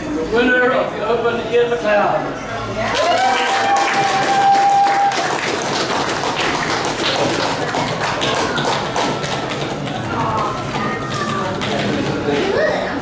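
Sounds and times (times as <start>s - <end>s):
people clapping: 2.9s - 12.5s.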